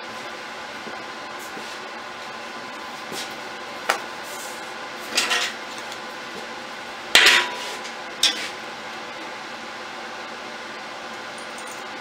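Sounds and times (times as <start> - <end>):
metal pieces clinking and knocking: 11.4 - 11.9.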